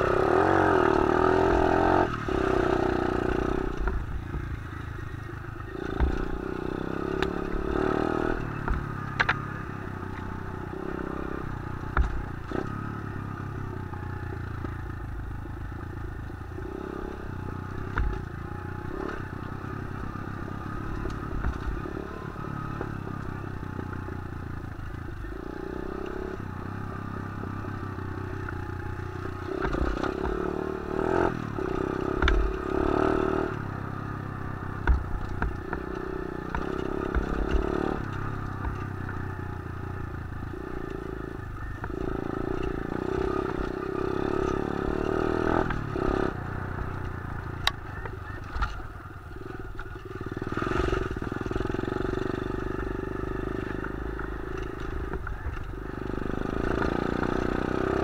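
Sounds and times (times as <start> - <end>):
motorbike engine running: 0.0 - 58.0
bike clattering over bumps: 34.7 - 39.5.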